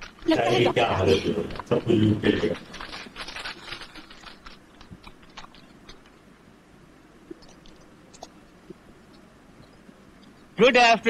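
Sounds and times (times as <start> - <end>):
low hiss: 0.0 - 11.0
faint clicks and ticks: 1.4 - 6.3, 7.2 - 10.6.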